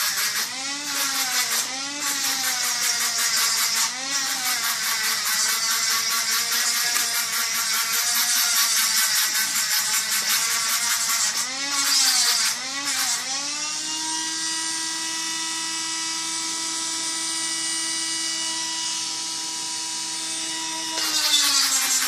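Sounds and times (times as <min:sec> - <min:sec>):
rotary tool grinding plastic: 0:00.0 - 0:13.4, 0:20.7 - 0:22.0
rotary tool whining: 0:00.0 - 0:22.0.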